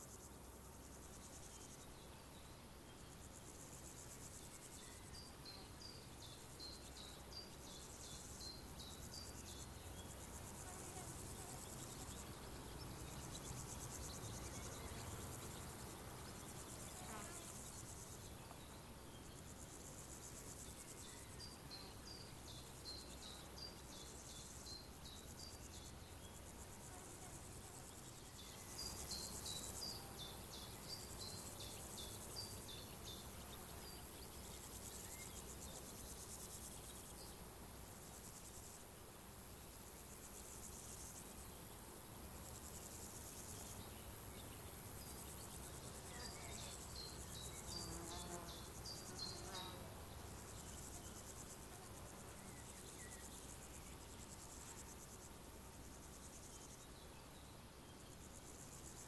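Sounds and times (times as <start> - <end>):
insects chirring: 0.0 - 59.0
songbird singing: 0.1 - 37.5, 42.6 - 59.0.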